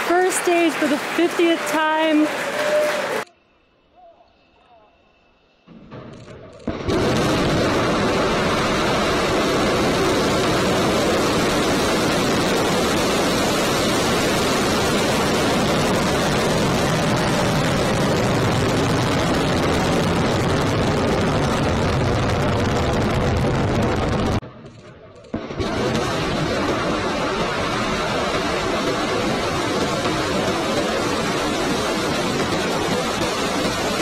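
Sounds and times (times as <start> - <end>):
rocket engines roaring: 6.6 - 34.0.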